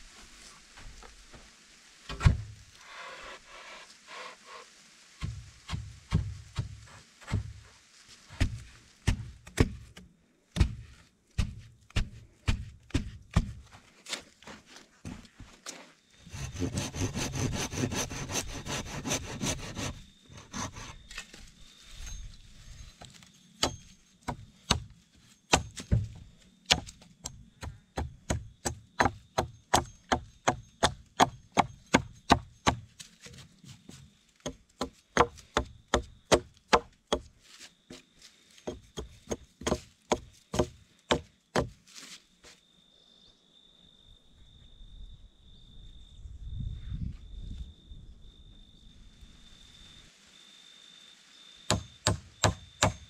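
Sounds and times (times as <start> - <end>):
hatchet chopping log: 8.4 - 10.8, 11.4 - 13.6, 23.6 - 24.9, 25.5 - 26.1, 26.7 - 32.9, 34.4 - 37.3, 38.6 - 41.8, 51.7 - 53.0
hand saw sawing: 16.2 - 21.0.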